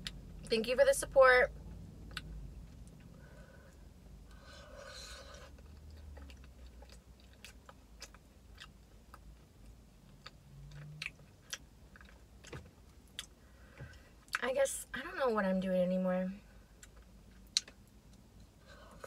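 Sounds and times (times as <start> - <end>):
chewing soft food: 4.3 - 13.4.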